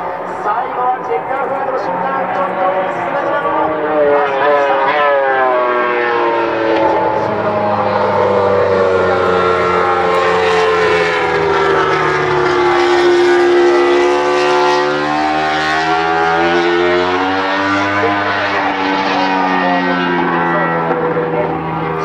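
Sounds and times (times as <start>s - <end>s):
motorcycle engine running: 5.8s - 22.0s.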